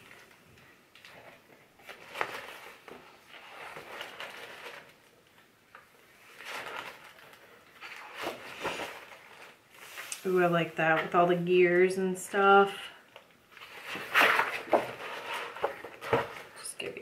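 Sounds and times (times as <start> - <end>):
paper pages rustling: 0.0 - 11.1, 13.2 - 17.0.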